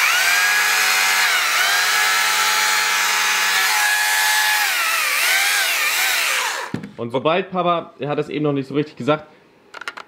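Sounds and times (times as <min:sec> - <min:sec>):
battery chainsaw whining: 0:00.0 - 0:06.8.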